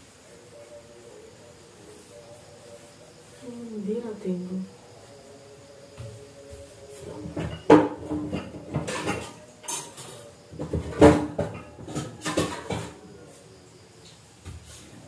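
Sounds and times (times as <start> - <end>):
kitchenware clattering: 7.0 - 13.4.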